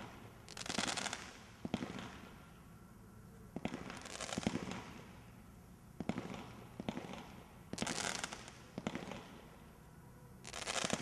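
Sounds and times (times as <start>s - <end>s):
hissing crackle of stars: 0.0s - 2.5s, 6.3s - 9.7s, 10.4s - 11.0s.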